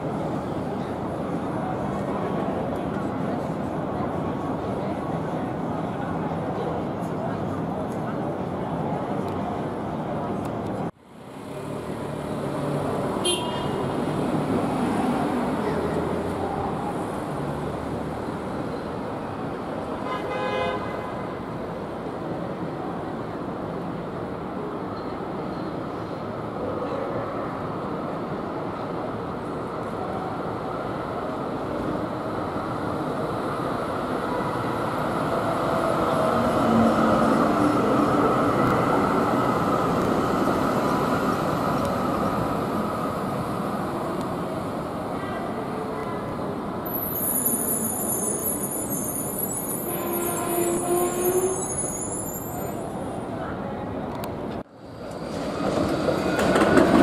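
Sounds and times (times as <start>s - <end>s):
tram approaching: 0.0s - 20.1s, 21.0s - 57.0s
street traffic: 0.0s - 57.0s
short horn toot: 49.8s - 52.1s.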